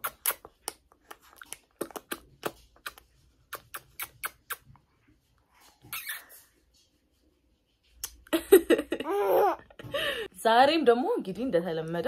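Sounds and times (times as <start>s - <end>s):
smacking kisses: 0.0s - 4.8s, 5.8s - 6.3s, 8.0s - 8.3s.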